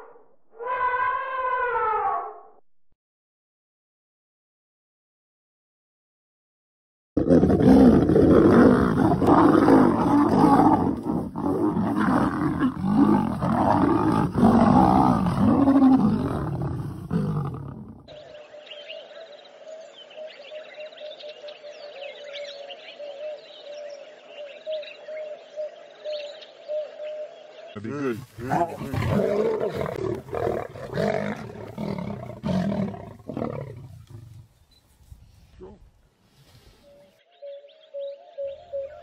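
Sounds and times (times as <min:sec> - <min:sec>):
lions snarling and growling: 0:07.2 - 0:18.1, 0:27.8 - 0:34.6.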